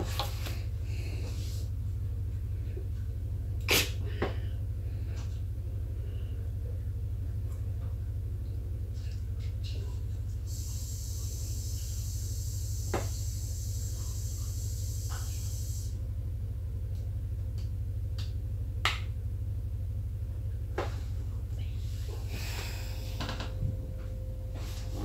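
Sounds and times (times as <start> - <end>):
low room hum: 0.0 - 25.0
high hiss: 10.5 - 16.0.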